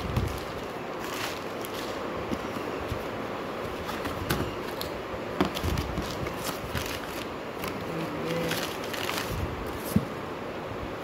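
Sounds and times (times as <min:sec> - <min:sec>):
tissue paper rustling: 0:00.0 - 0:02.0, 0:05.6 - 0:10.0.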